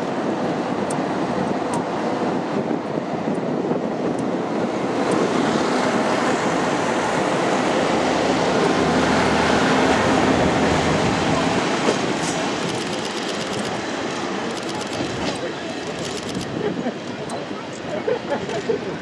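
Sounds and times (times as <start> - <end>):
diesel railcar engine running: 0.0 - 19.0
train wheels rolling on rails: 10.0 - 19.0.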